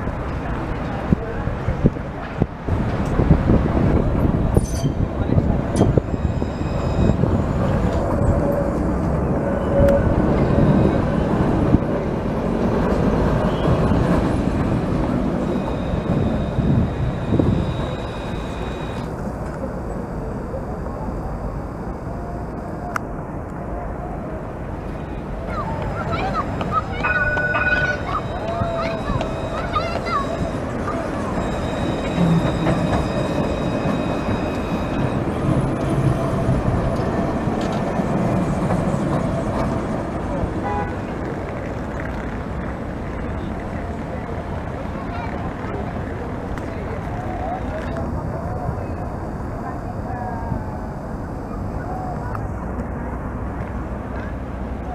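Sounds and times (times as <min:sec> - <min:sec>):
tram wheels rumbling on rail: 0:00.0 - 0:54.9
faint high whine: 0:04.6 - 0:37.8, 0:44.2 - 0:54.9.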